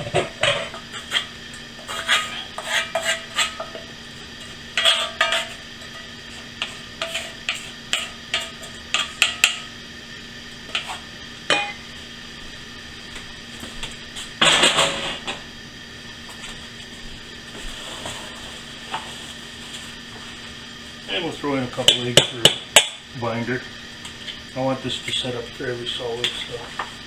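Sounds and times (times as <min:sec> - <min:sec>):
wooden spatula scraping metal: 0:00.4 - 0:03.8, 0:04.8 - 0:06.0, 0:06.6 - 0:09.2.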